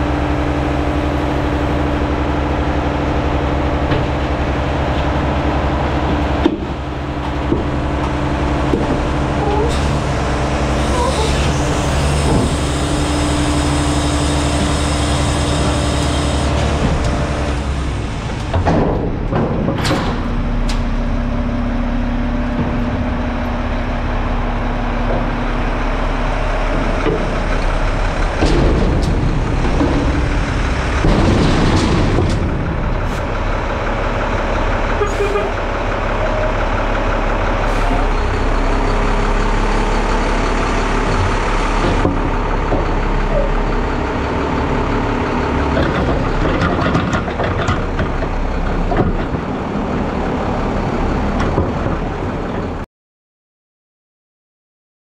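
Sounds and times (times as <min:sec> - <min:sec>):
garbage truck running: 0:00.0 - 0:52.8
loud metal knocks and clanks: 0:03.6 - 0:21.2, 0:26.6 - 0:34.5, 0:39.8 - 0:44.3, 0:45.7 - 0:49.6.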